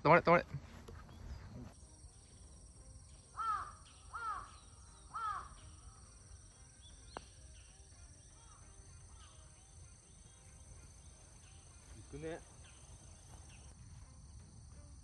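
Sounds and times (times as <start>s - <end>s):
crow cawing: 3.4s - 6.0s.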